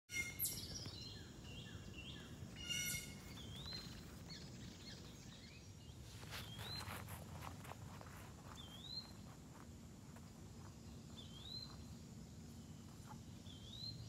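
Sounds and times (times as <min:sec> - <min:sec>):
harsh buzzy bird call: 0:02.5 - 0:03.8.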